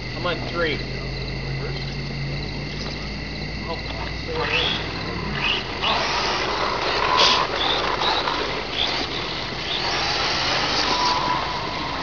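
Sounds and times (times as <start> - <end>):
steady hissing: 0.0 - 12.0
toy truck motors whirring: 3.6 - 12.0.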